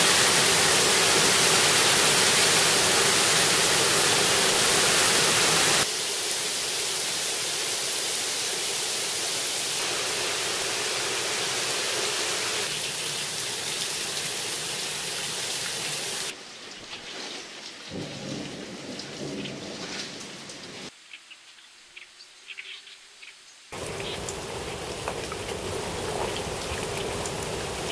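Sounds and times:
heavy rain hissing: 0:00.0 - 0:16.5, 0:23.7 - 0:27.9
scattered drips: 0:23.8 - 0:27.9.

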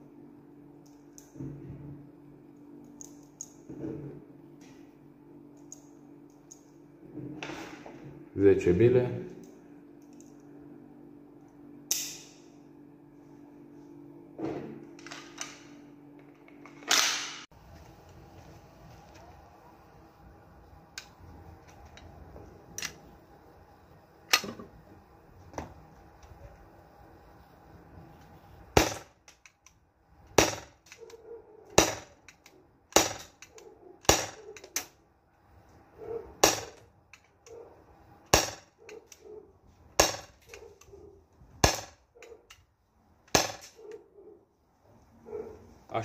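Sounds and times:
pistol handling clicks: 0:11.9 - 0:12.4
airsoft pistol shots: 0:30.4 - 0:30.8, 0:31.8 - 0:32.2, 0:32.9 - 0:33.4, 0:34.0 - 0:34.4, 0:36.4 - 0:36.8, 0:38.3 - 0:38.7, 0:41.6 - 0:42.0, 0:43.3 - 0:43.7.

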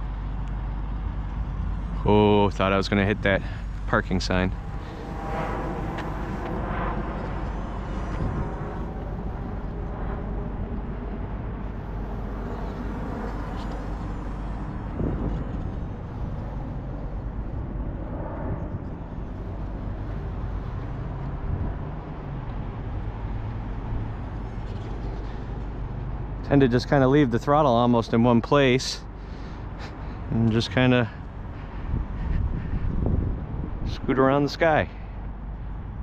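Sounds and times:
low traffic rumble: 0:00.0 - 0:36.0
wind on microphone: 0:03.7 - 0:25.7, 0:31.2 - 0:34.2.

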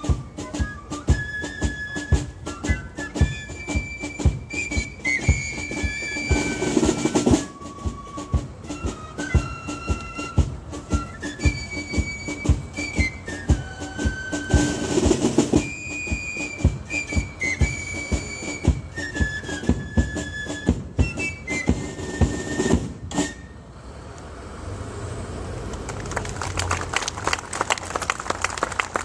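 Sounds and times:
side drum beats: 0:00.0 - 0:23.4
applause: 0:25.7 - 0:29.0.

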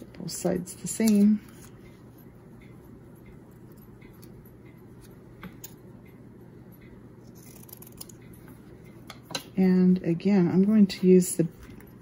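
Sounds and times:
scissors snipping paper: 0:07.3 - 0:08.2.

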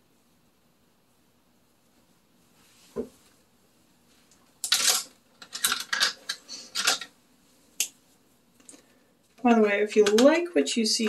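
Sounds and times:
makeup items clattering: 0:04.6 - 0:07.1.

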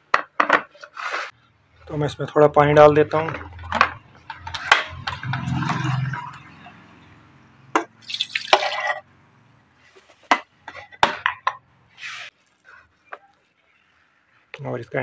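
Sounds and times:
water pouring into kettle: 0:08.0 - 0:08.9.

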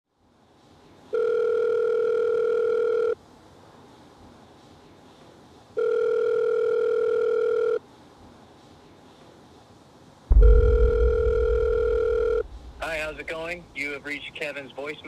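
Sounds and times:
telephone ringback tone: 0:01.1 - 0:03.2, 0:05.8 - 0:07.8, 0:10.6 - 0:12.4.

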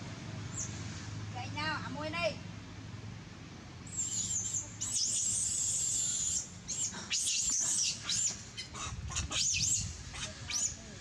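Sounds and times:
high-pitched animal calls: 0:03.9 - 0:10.8.

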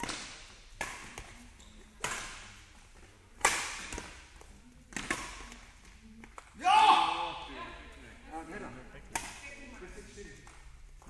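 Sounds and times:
racket hitting shuttlecock: 0:00.0 - 0:01.4, 0:02.0 - 0:02.6, 0:03.4 - 0:04.3, 0:04.9 - 0:05.7, 0:09.1 - 0:09.5.

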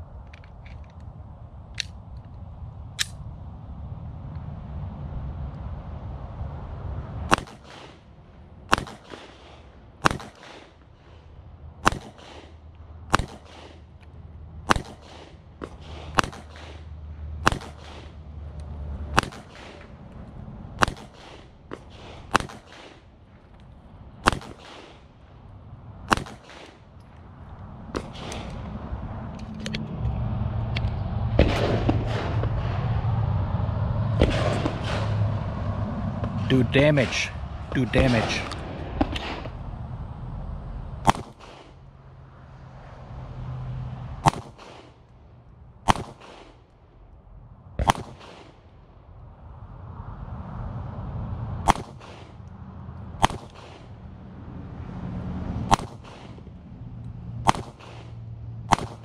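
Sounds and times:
low rumble: 0:00.0 - 0:10.2, 0:10.8 - 0:45.9
pistol shots: 0:07.3 - 0:08.0, 0:08.7 - 0:10.8, 0:11.8 - 0:13.8, 0:14.6 - 0:18.2, 0:19.1 - 0:19.9, 0:20.8 - 0:23.1, 0:24.2 - 0:25.1, 0:26.1 - 0:26.8, 0:31.4 - 0:32.7, 0:34.2 - 0:35.1, 0:41.0 - 0:41.8, 0:44.2 - 0:45.0, 0:45.8 - 0:46.6, 0:47.8 - 0:48.6, 0:51.7 - 0:52.4, 0:53.2 - 0:54.0, 0:55.7 - 0:56.4, 0:57.4 - 0:59.0.

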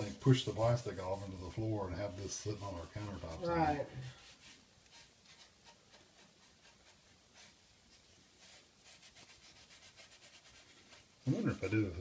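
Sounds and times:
cloth rag rubbing on wood: 0:00.0 - 0:12.0.

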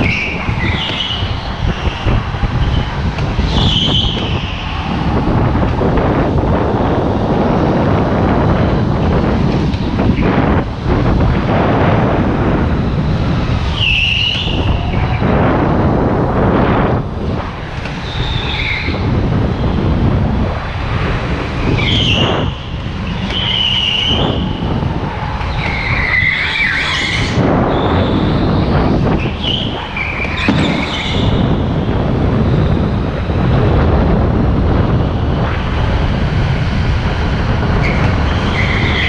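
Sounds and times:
tyres squealing: 0:00.0 - 0:05.3, 0:13.6 - 0:15.2, 0:18.0 - 0:19.1, 0:21.6 - 0:31.6, 0:37.8 - 0:39.0
wind on microphone: 0:00.0 - 0:39.0.

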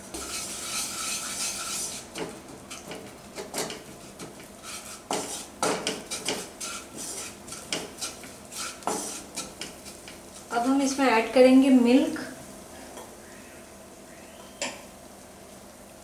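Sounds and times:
wooden spatula scraping a pan: 0:00.0 - 0:11.3.

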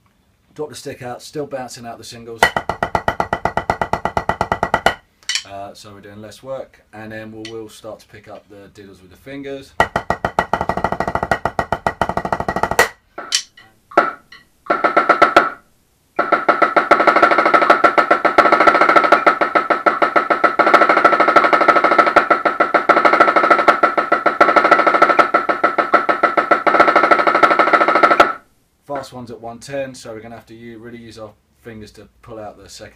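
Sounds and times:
marching snare drum roll: 0:02.4 - 0:05.0, 0:09.7 - 0:13.4, 0:14.0 - 0:15.6, 0:16.2 - 0:28.4
sticks on practice pad: 0:02.4 - 0:05.6, 0:07.4 - 0:07.7, 0:09.7 - 0:15.6, 0:16.2 - 0:29.1.

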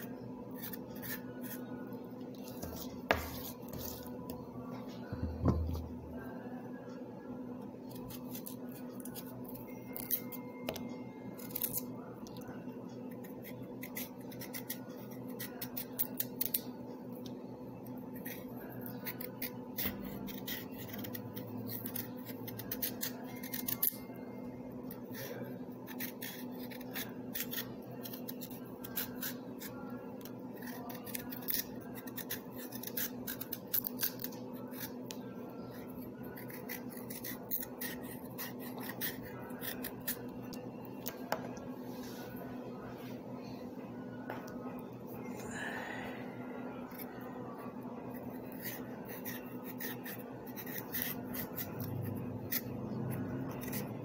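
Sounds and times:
steady low hum: 0:00.0 - 0:54.0
blade scraping carrot skin: 0:48.3 - 0:54.0.

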